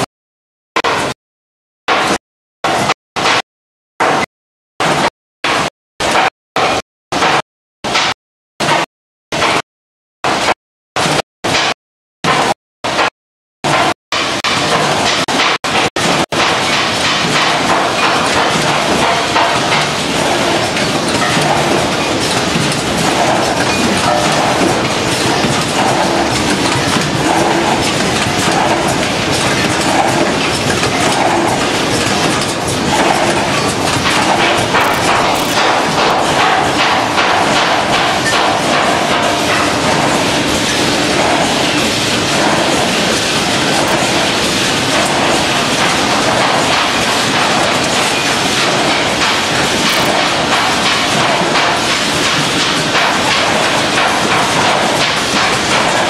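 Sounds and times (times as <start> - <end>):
packaging machines clattering: 14.2 - 56.0.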